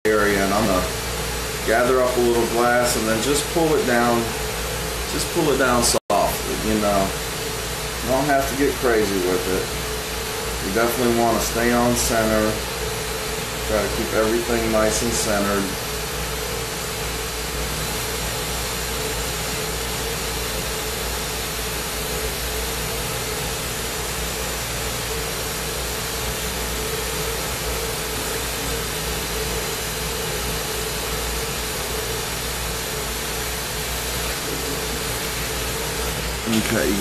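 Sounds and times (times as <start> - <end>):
ventilation hum: 0.0 - 37.0
torch hissing: 0.2 - 37.0.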